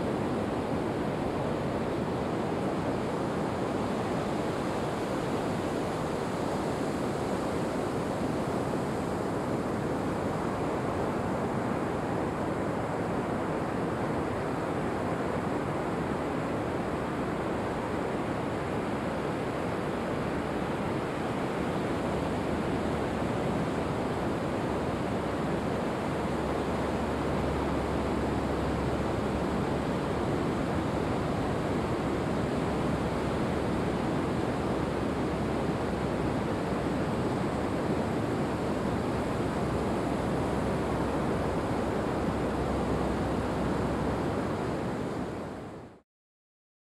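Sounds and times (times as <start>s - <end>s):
ocean surf washing onto beach: 0.0s - 45.7s.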